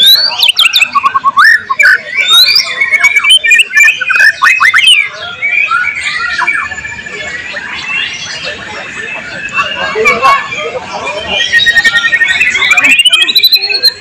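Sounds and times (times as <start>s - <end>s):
songbird singing whistles and trills: 0.0s - 14.0s.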